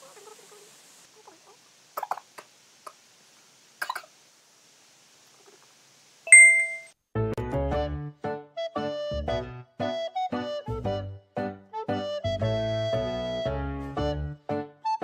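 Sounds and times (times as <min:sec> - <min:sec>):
bright ding: 0:06.3 - 0:06.9.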